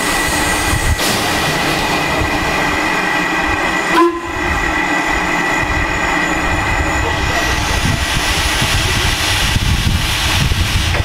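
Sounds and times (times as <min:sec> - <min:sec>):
steam hissing from locomotive: 0:00.0 - 0:11.0.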